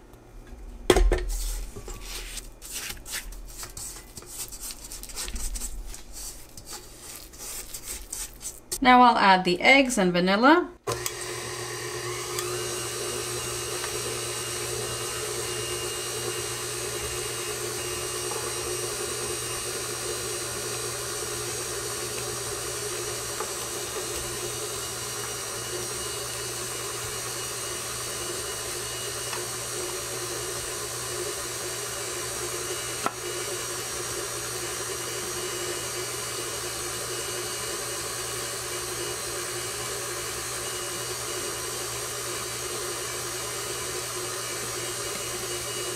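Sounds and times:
stand mixer motor running: 10.8s - 45.9s.

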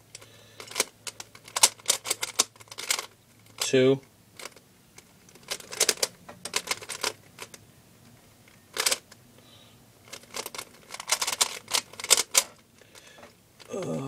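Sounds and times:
puzzle cube plastic clacking: 0.1s - 9.2s, 10.0s - 13.8s.

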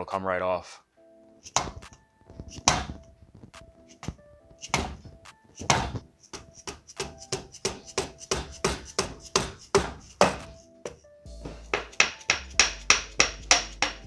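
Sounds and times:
hammer tapping engine cylinder head: 11.7s - 14.0s.

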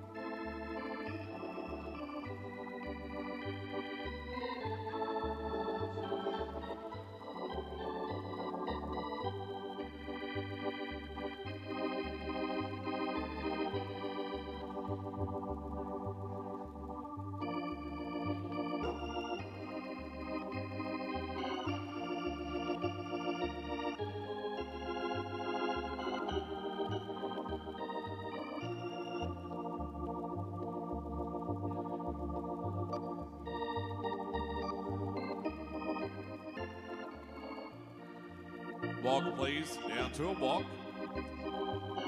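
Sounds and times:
organ chords: 0.0s - 42.0s.

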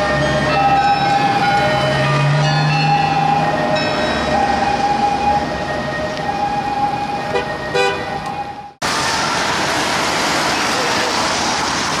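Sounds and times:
emergency siren: 0.0s - 12.0s
traffic hiss on wet street: 8.8s - 12.0s.

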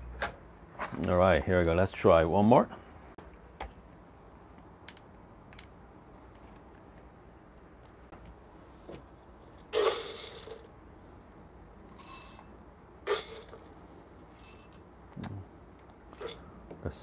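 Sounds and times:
coffee beans rattling: 9.6s - 10.7s, 11.9s - 12.5s, 13.1s - 13.7s, 14.3s - 14.8s, 16.2s - 16.4s.

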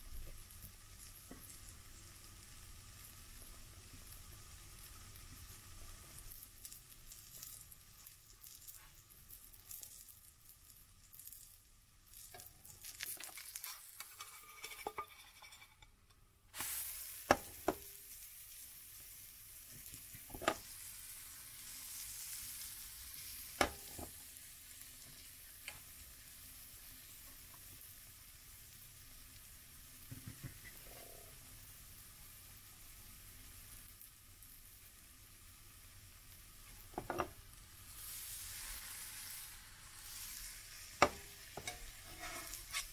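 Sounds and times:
pancake frying in a pan: 0.0s - 42.9s
spatula knocking on pan: 41.0s - 41.8s.

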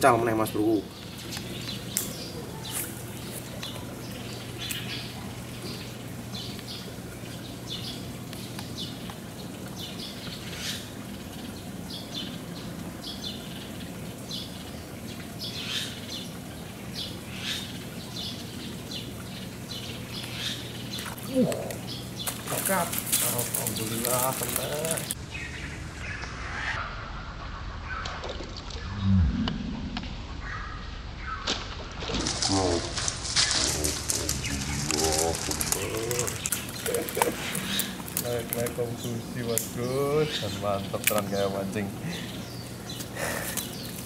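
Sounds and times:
small birds chirping: 0.0s - 27.0s, 32.5s - 44.0s
steady low hum: 28.7s - 31.2s.

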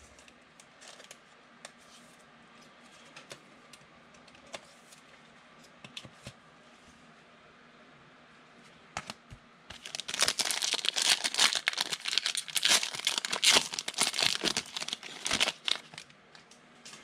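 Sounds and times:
plastic wrapper tearing and crinkling: 9.7s - 16.1s.

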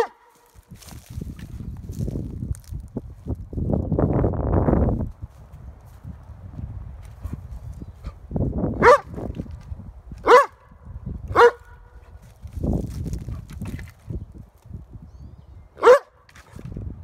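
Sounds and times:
dog barking: 0.0s - 0.4s, 8.8s - 9.1s, 10.2s - 10.7s, 11.3s - 12.1s, 15.8s - 16.2s
paws scuffling through pine needles: 0.3s - 3.6s, 12.0s - 14.8s.

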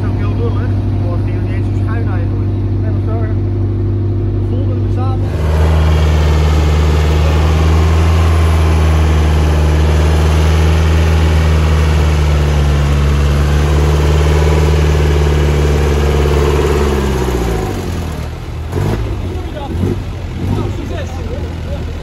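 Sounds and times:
off-road engine at high revs: 0.0s - 22.0s.

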